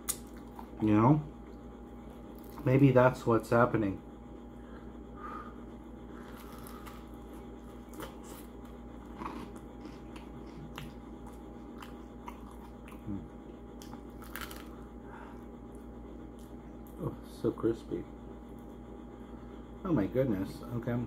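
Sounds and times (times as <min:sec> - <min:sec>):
crunchy pizza chewing: 0:00.0 - 0:02.9, 0:06.0 - 0:17.1.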